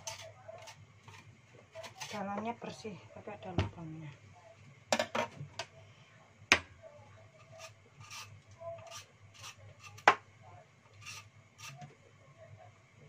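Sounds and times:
blade scraping vegetable skin: 0:07.5 - 0:10.0, 0:11.0 - 0:11.8.

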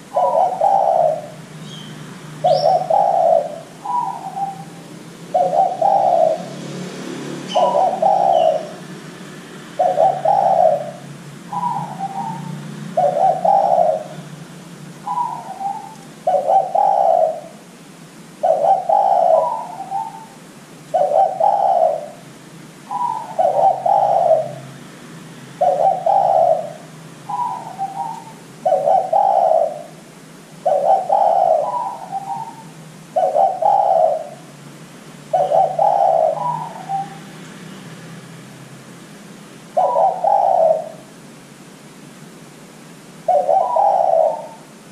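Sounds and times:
dove cooing: 0:00.0 - 0:09.1, 0:09.7 - 0:17.7, 0:18.3 - 0:24.8, 0:25.6 - 0:34.6, 0:35.2 - 0:37.4, 0:39.7 - 0:41.2, 0:43.2 - 0:44.9.

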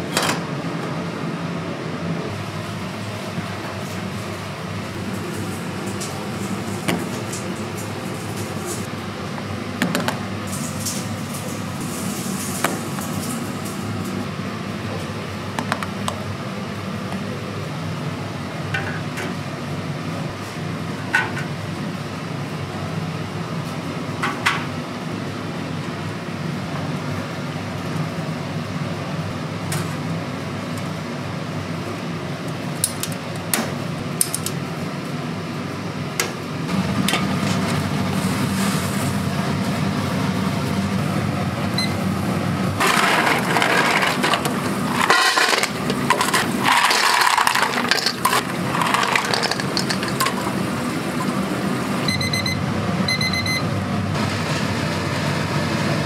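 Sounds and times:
low hum of kitchen equipment: 0:00.0 - 0:56.0
utensils and dishes clinking: 0:42.8 - 0:51.5.

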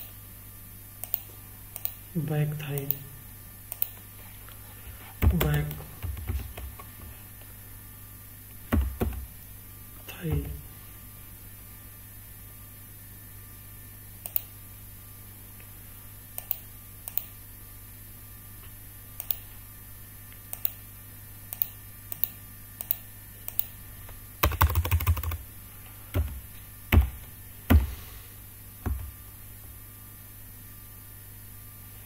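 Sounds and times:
computer keyboard typing: 0:05.2 - 0:06.9, 0:08.7 - 0:09.3, 0:24.4 - 0:25.4, 0:26.2 - 0:27.8.

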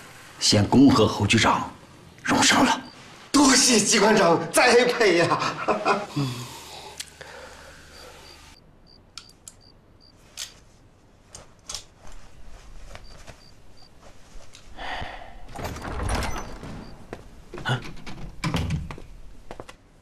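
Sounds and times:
rustling of bedding: 0:10.2 - 0:14.8.

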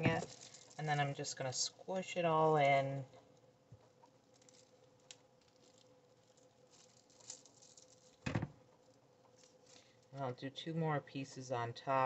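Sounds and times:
hands squishing wet paper: 0:00.0 - 0:01.2, 0:03.2 - 0:10.2
faint crackles and soft ticks: 0:02.6 - 0:10.3.

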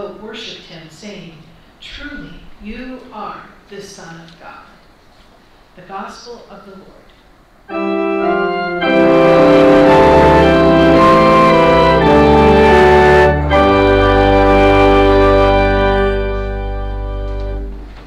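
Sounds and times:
organ playing slow chords: 0:07.7 - 0:18.0.

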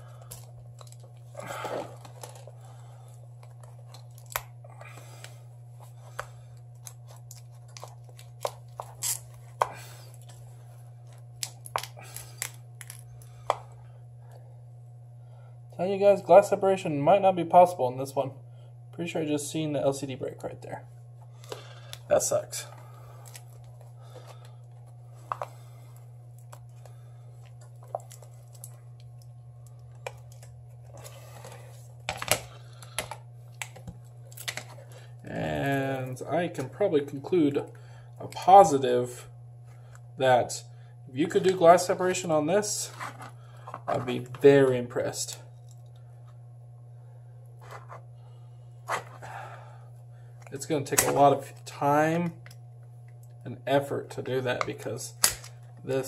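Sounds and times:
steady low hum: 0:00.0 - 0:56.0
glass cracking and snapping: 0:11.4 - 0:13.0, 0:55.2 - 0:55.5.

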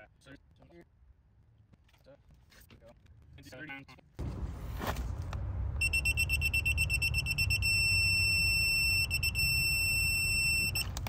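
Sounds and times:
torque wrench beeping: 0:05.8 - 0:10.9.

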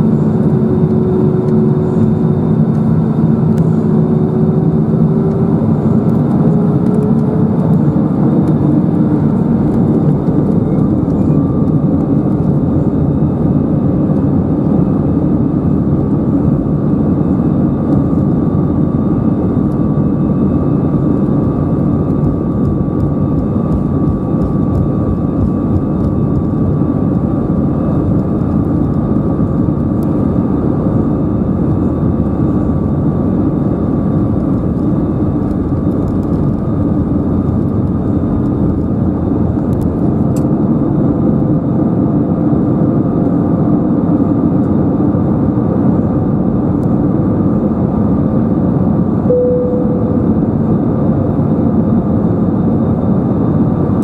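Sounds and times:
engine fan whine: 0:00.0 - 0:54.0
loud steady cabin rush: 0:20.1 - 0:40.9, 0:49.3 - 0:51.5.

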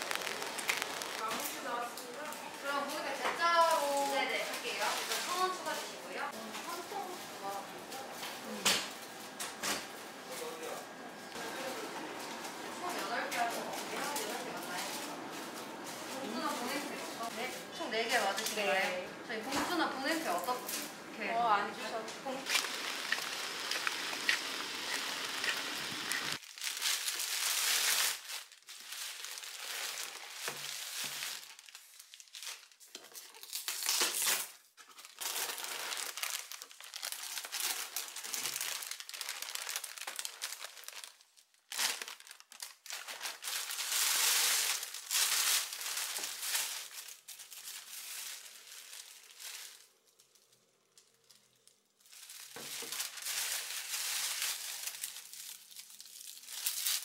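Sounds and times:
plastic bags rustling: 0:00.0 - 0:57.0
steady outdoor hiss: 0:20.4 - 0:26.4.

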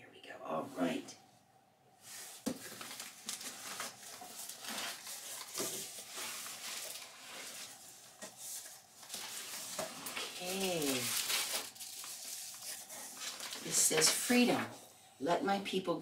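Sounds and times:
plastic packing material rustling: 0:02.1 - 0:14.7.

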